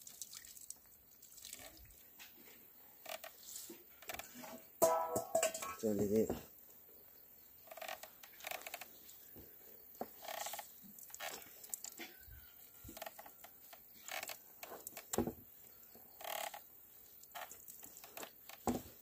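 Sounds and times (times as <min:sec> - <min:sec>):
sharp knocks of wooden poles: 0:04.8 - 0:05.8.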